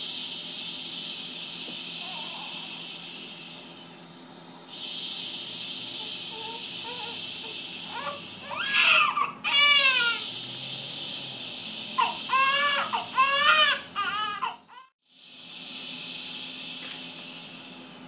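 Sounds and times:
steady shushing hiss: 0:04.7 - 0:14.5
newborn baby crying: 0:12.0 - 0:14.9.

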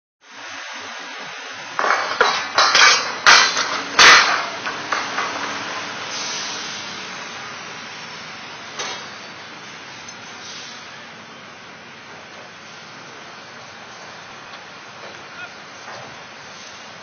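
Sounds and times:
steady background noise: 0:00.2 - 0:17.0
metal-on-metal clanks: 0:01.8 - 0:05.6.

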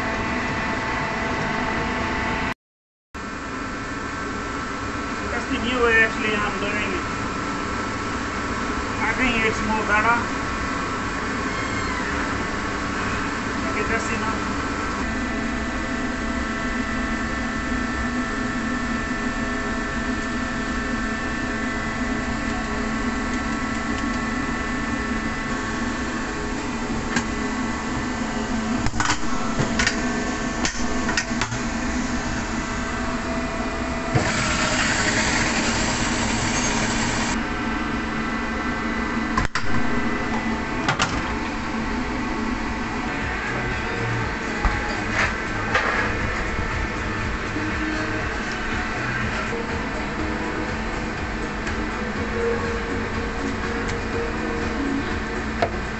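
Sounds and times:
kitchen machinery hum: 0:00.0 - 0:02.5, 0:03.2 - 0:55.9
food processor motor whirring: 0:34.1 - 0:37.4.

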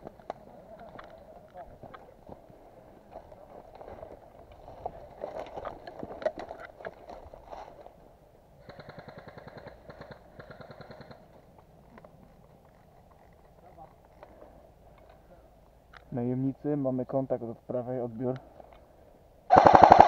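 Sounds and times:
airsoft gun full-auto bursts: 0:08.6 - 0:11.2, 0:19.5 - 0:20.0.

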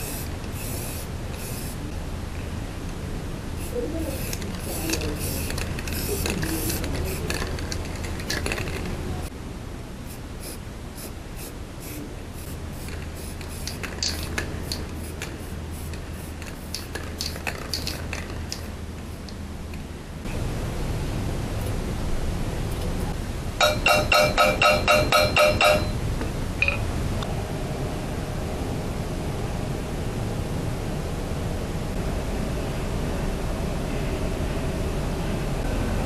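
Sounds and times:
spray paint can hissing: 0:00.0 - 0:01.8, 0:03.6 - 0:08.6, 0:10.1 - 0:18.7
steady low hum: 0:00.0 - 0:36.0.

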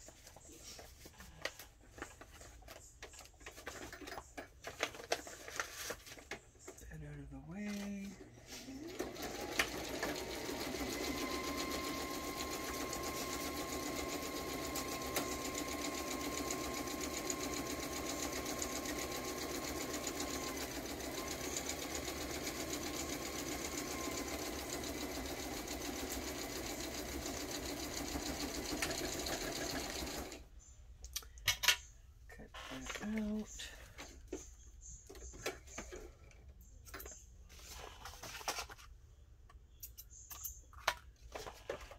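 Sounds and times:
sewing machine stitching: 0:08.8 - 0:30.4.

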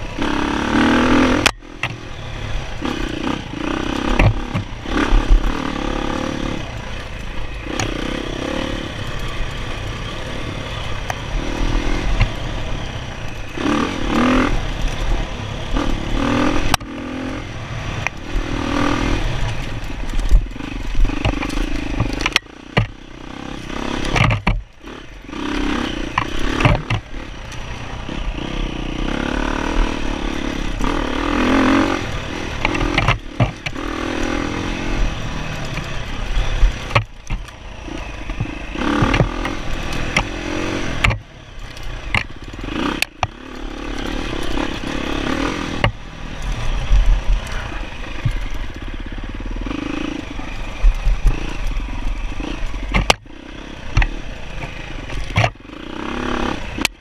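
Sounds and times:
dirt bike engine revving: 0:00.0 - 0:57.0
bike knocks and clatter: 0:04.1 - 0:05.4, 0:19.4 - 0:23.0, 0:24.0 - 0:24.8, 0:26.1 - 0:27.2, 0:32.6 - 0:33.8, 0:35.6 - 0:37.6, 0:38.2 - 0:40.4, 0:52.4 - 0:53.3, 0:53.9 - 0:55.7.

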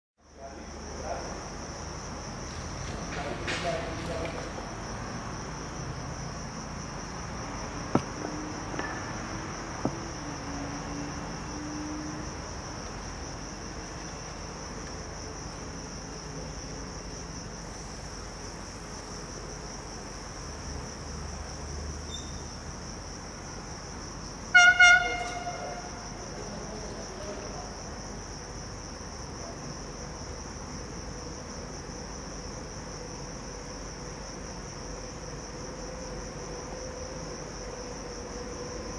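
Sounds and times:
crickets chirping: 0:00.2 - 0:38.9
train horn toot: 0:24.5 - 0:26.0.

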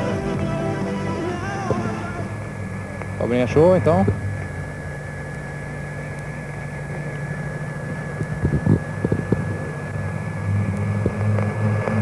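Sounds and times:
high thin tone: 0:00.0 - 0:03.0
turboprop aircraft drone: 0:00.0 - 0:12.0.

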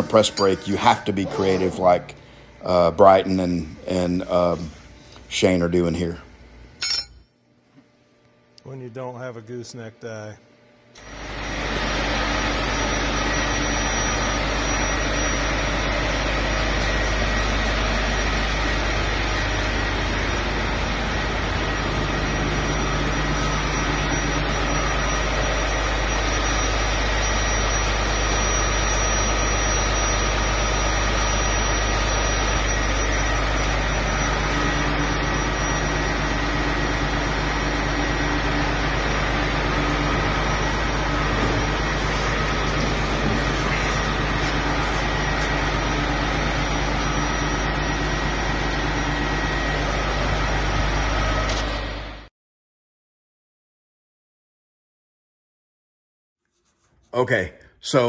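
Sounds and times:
machinery low hum: 0:00.0 - 0:52.3
faint whining tones: 0:08.1 - 0:51.8.

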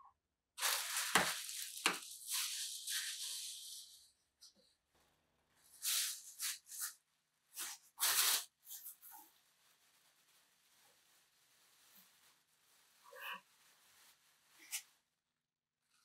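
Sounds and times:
crinkly paper rustling: 0:00.6 - 0:04.1, 0:07.6 - 0:15.0.

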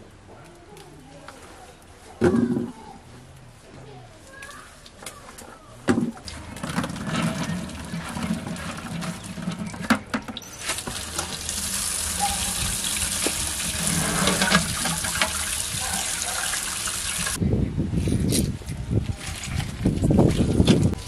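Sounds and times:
running water splashing: 0:10.4 - 0:17.4.

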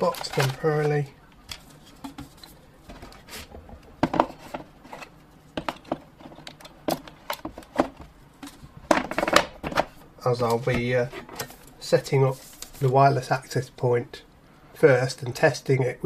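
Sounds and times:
cardboard rustling: 0:00.0 - 0:11.6.

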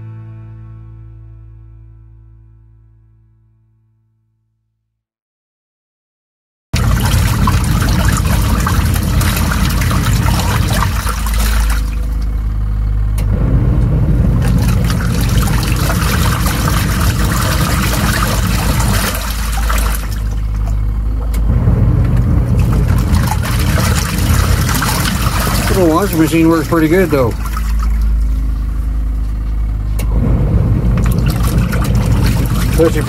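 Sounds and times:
washing machine motor hum: 0:06.8 - 0:33.0
water churning and sloshing: 0:06.8 - 0:33.0.

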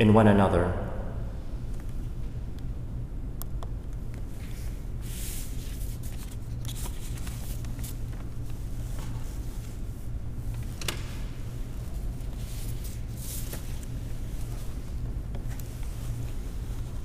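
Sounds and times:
steady low hum: 0:00.0 - 0:17.0
paper pages rustling: 0:04.2 - 0:09.9, 0:11.7 - 0:17.0.

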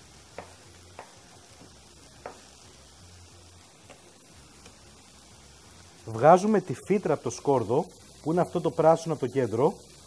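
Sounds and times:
knife chopping on wooden board: 0:00.3 - 0:02.5.

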